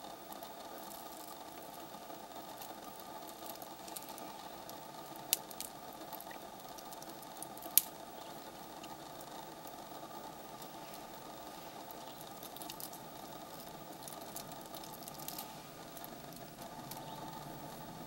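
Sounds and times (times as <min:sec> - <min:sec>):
steady low hum: 0:00.0 - 0:18.0
elephant chewing twigs and leaves: 0:00.6 - 0:07.6, 0:10.5 - 0:18.0
twigs snapping and crunching: 0:02.5 - 0:09.3, 0:10.6 - 0:17.3.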